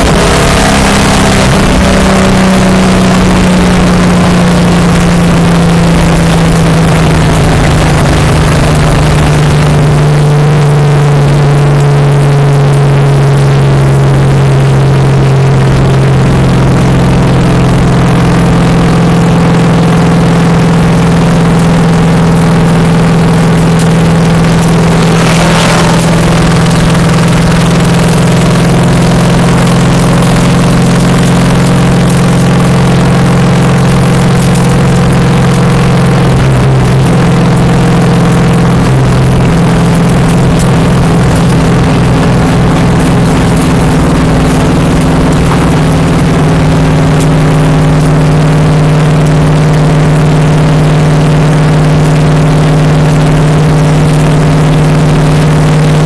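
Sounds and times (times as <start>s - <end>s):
car engine running hard: 0.0s - 56.0s
brief rush of noise: 24.2s - 27.9s.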